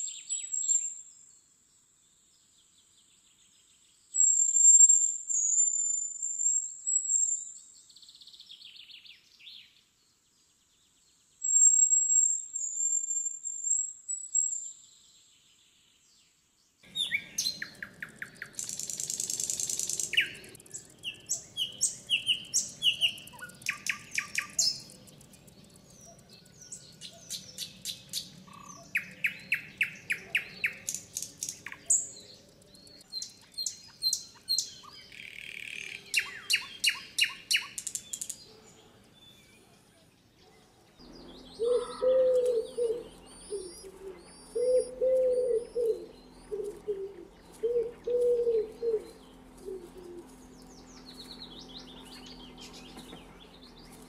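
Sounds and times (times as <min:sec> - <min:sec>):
songbirds chirping: 0:00.0 - 0:54.0
low cooing bird call: 0:16.9 - 0:25.1, 0:41.0 - 0:53.7.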